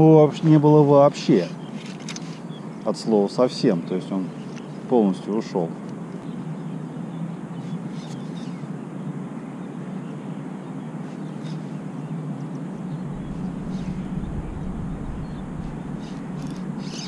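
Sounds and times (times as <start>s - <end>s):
low rumble: 12.9s - 16.8s.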